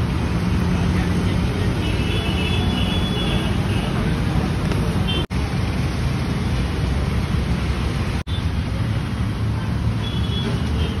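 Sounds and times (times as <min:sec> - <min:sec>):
road traffic noise: 0:00.0 - 0:11.0.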